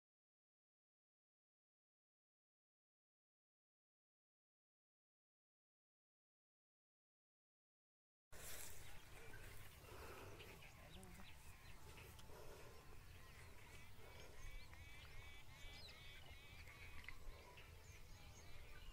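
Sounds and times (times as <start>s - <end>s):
faint birds chirping: 8.4s - 18.9s.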